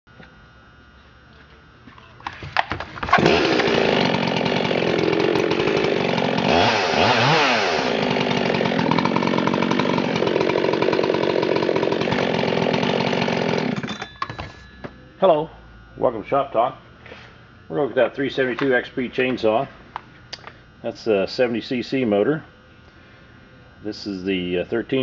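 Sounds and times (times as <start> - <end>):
chainsaw engine running: 3.0 - 13.9.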